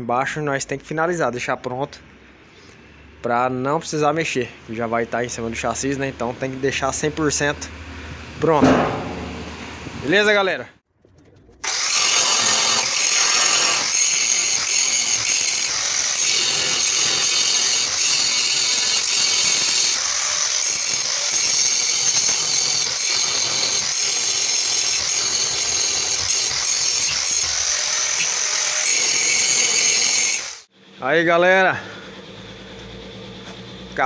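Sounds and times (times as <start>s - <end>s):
angle grinder grinding steel: 11.6s - 30.7s.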